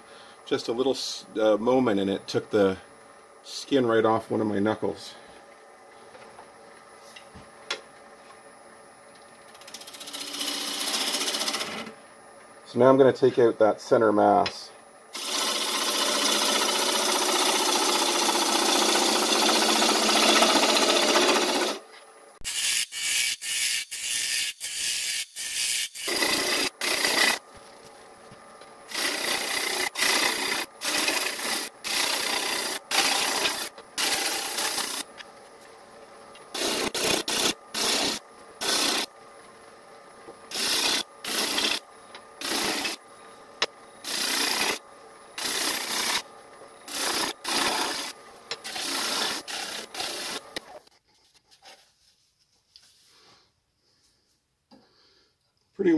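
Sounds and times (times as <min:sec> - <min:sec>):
gouge cutting wood on lathe: 0:09.7 - 0:11.9, 0:15.2 - 0:21.8, 0:26.1 - 0:27.4, 0:28.9 - 0:35.1, 0:36.6 - 0:39.1, 0:40.5 - 0:41.8, 0:42.4 - 0:43.0, 0:44.0 - 0:44.8, 0:45.4 - 0:46.2, 0:46.9 - 0:50.7.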